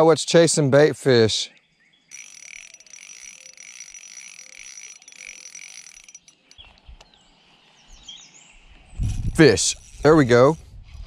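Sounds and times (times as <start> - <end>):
insect trilling: 2.1 - 6.6, 9.4 - 10.7.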